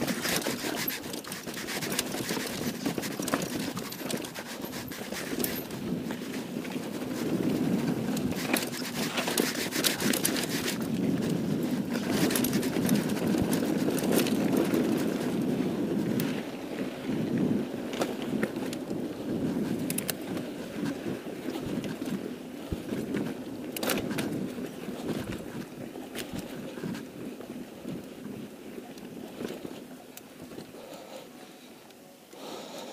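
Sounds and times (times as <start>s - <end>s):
bike rattling over stones: 0.0s - 15.5s
bike tyres rumbling over dirt: 10.0s - 28.4s.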